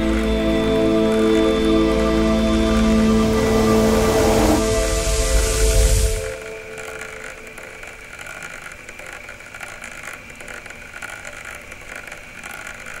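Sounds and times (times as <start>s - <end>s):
even hiss: 0.0s - 8.5s.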